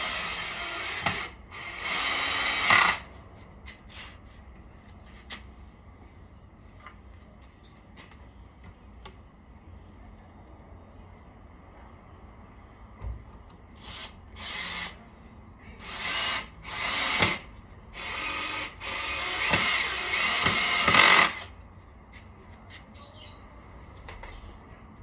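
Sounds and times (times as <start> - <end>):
power drill bursts: 0.0 - 3.0, 13.8 - 15.0, 15.8 - 21.5.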